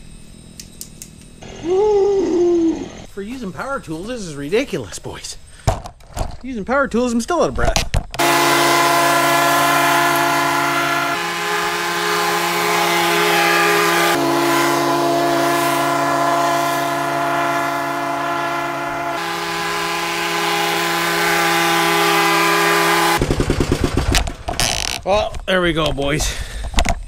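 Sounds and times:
sustained organ-like chords: 1.2 - 3.2, 8.2 - 23.9.

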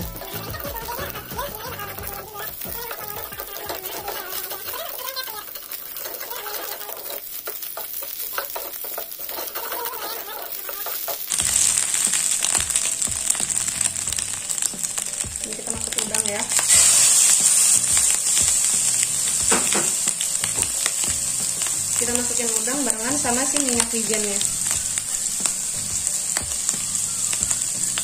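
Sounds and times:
food sizzling in hot oil: 0.0 - 28.0
wooden spatula stirring: 0.0 - 28.0.

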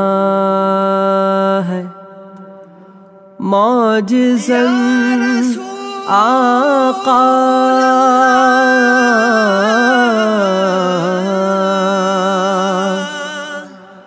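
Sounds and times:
person singing long wavering note: 3.4 - 14.0.

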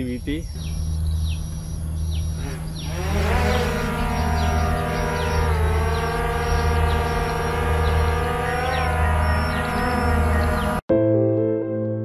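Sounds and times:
drone motors whining: 0.7 - 10.8.

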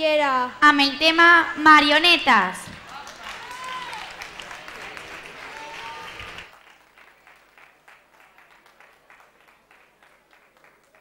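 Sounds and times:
audience applause: 2.8 - 11.0.

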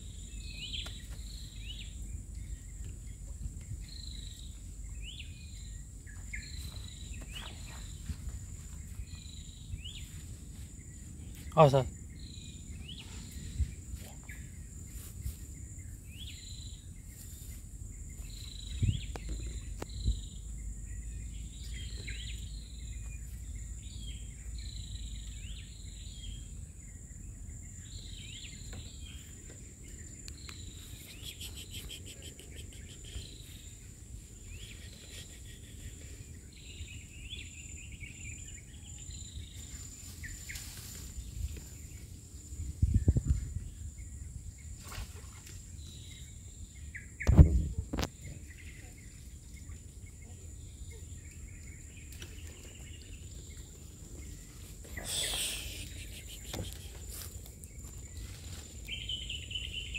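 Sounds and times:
bird chirps: 0.0 - 10.2, 27.7 - 40.7, 45.9 - 58.2
high insect drone: 54.3 - 59.8.

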